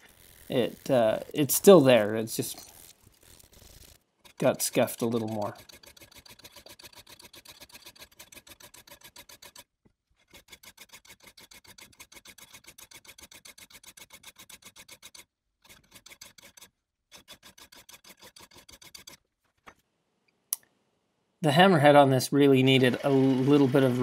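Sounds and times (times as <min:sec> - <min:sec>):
file rasping on steel: 0:02.5 - 0:19.2.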